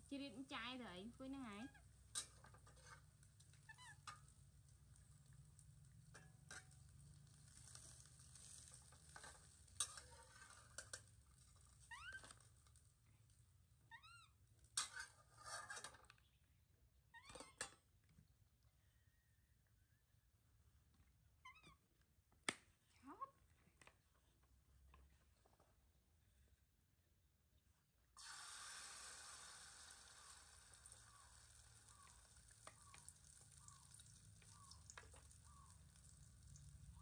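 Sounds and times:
faint sizzling: 0:00.0 - 0:16.1, 0:28.2 - 0:37.0
metal spatula scraping wok: 0:02.0 - 0:04.4, 0:06.1 - 0:12.5, 0:14.7 - 0:16.2.

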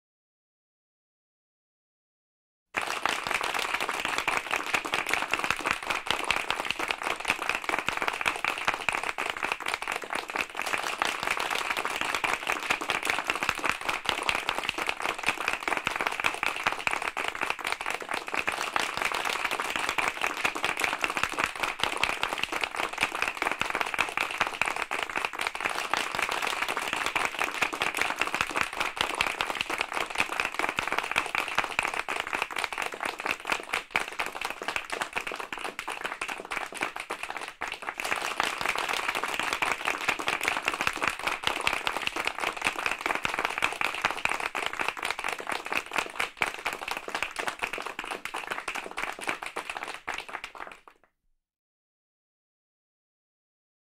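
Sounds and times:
group applauding: 0:02.8 - 0:51.1.

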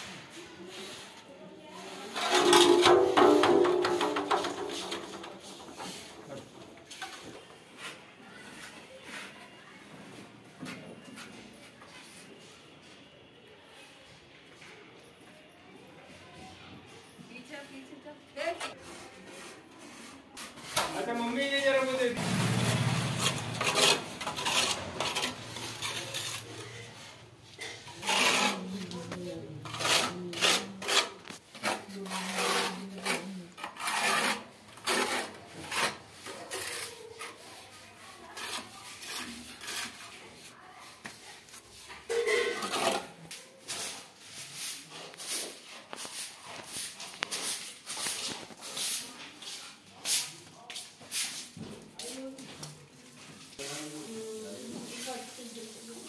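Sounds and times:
gritty scrapes and clinks: 0:02.1 - 0:06.1, 0:23.0 - 0:40.3.

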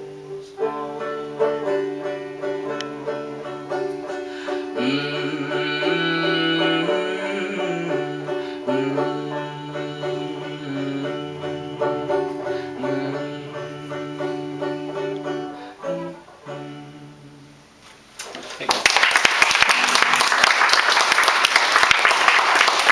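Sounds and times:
banjo plucked notes: 0:00.0 - 0:17.5
listeners applauding: 0:18.4 - 0:22.9.

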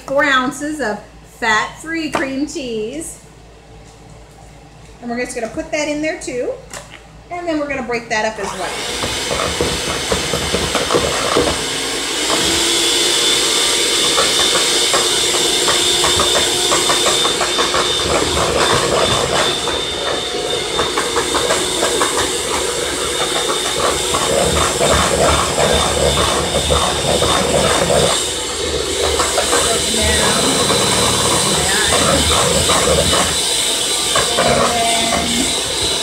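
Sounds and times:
electric hand mixer running: 0:08.4 - 0:36.0
mixer beaters rattling: 0:13.8 - 0:36.0.

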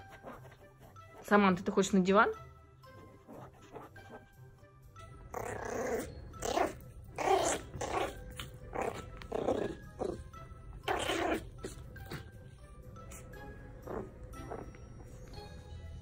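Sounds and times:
background music: 0:00.0 - 0:16.0
dog growling: 0:05.2 - 0:15.4.

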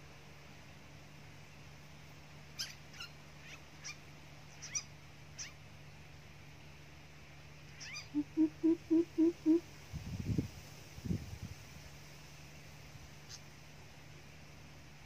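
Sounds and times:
faint steady hum: 0:00.0 - 0:15.0
bird chirping: 0:02.6 - 0:05.6, 0:07.7 - 0:09.6.

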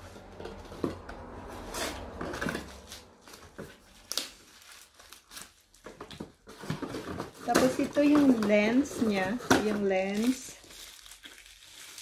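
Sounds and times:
cardboard rustling and scraping: 0:00.0 - 0:10.6.

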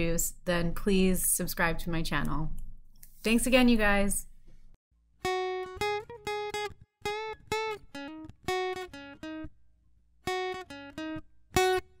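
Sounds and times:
plucked guitar melody: 0:05.2 - 0:09.6, 0:10.2 - 0:12.0.

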